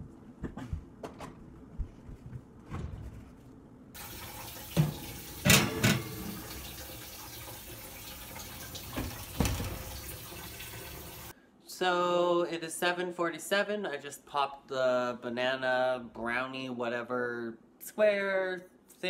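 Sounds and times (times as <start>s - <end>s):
oven door shutting: 4.7s - 6.4s, 9.0s - 9.9s
metal pan clanking on wire rack: 4.8s - 6.3s.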